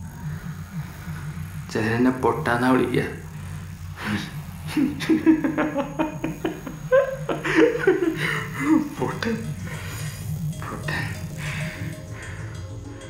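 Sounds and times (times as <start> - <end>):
low steady hum: 0.0 - 13.0
man chuckling and laughing: 4.7 - 12.1.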